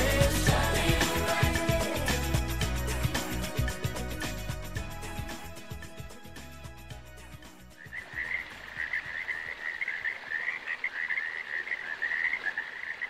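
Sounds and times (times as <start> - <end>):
music: 0.0 - 9.4
frogs calling: 7.8 - 13.0.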